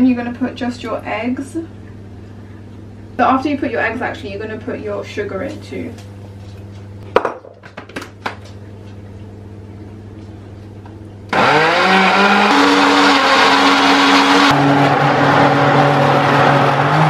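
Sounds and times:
blender motor running: 0:11.3 - 0:17.0.

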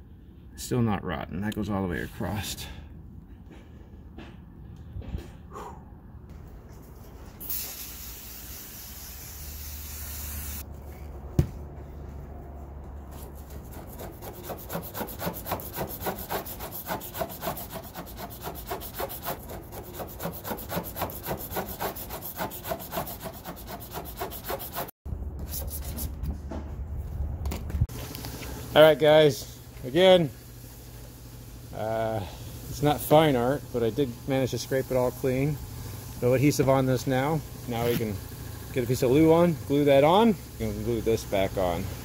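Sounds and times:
razor scraper scraping wood: 0:13.2 - 0:25.0.

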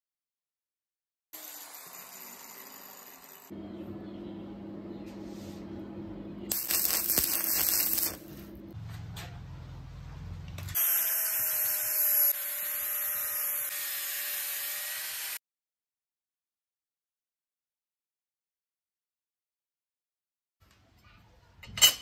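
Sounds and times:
angle grinder grinding metal: 0:01.4 - 0:03.5, 0:06.5 - 0:08.4, 0:10.7 - 0:15.4
arc welding crackle: 0:06.5 - 0:08.5.

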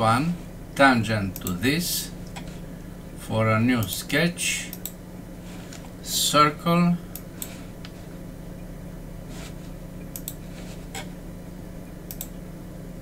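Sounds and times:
low electrical hum: 0:00.0 - 0:13.0
computer mouse clicks: 0:10.1 - 0:11.1, 0:12.1 - 0:12.4.

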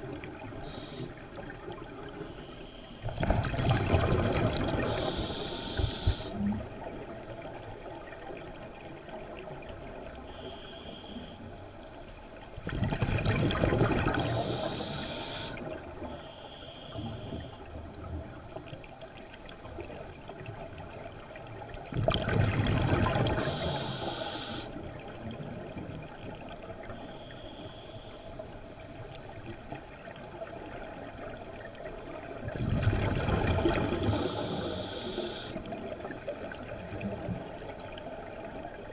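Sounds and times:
exhaled bubbles gushing underwater: 0:03.1 - 0:10.2, 0:12.6 - 0:16.1, 0:17.4 - 0:27.0, 0:30.0 - 0:38.9.

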